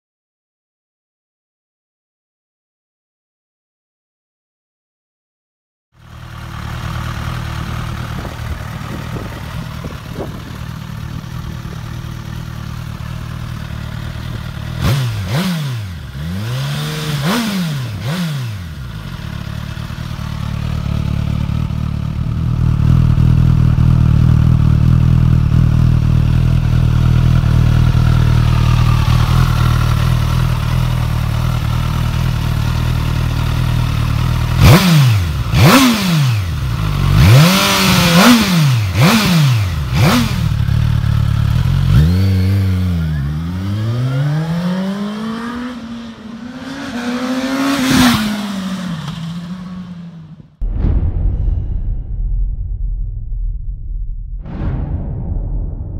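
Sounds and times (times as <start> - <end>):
motorcycle engine idling: 6.0 - 14.8, 18.7 - 34.7, 39.7 - 43.4
motorcycle engine revving: 6.0 - 50.5.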